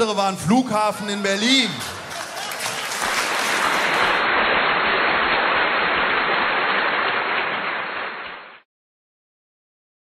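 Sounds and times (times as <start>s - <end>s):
audience applauding: 1.4s - 8.6s.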